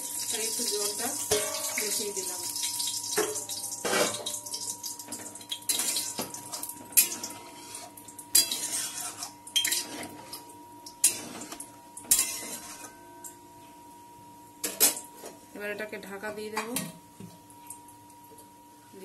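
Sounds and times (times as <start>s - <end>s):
spatula scraping a metal pan: 7.0s - 10.1s, 11.0s - 13.0s.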